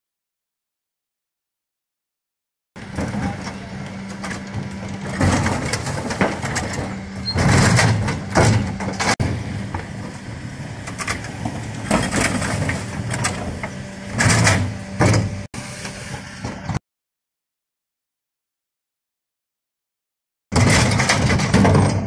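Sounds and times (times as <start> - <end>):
bins clattering and banging: 2.8 - 10.2, 10.8 - 15.5, 20.5 - 22.0
truck engine and hydraulics hum: 2.8 - 16.8.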